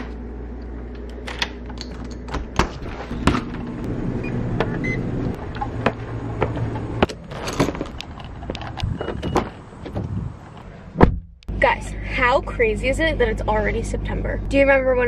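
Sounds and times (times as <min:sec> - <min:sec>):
door shutting: 0:02.3 - 0:10.2.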